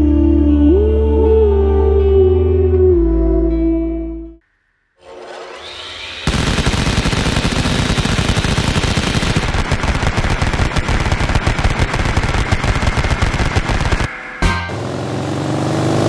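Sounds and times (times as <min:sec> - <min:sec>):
machine-gun fire: 0:06.2 - 0:14.9.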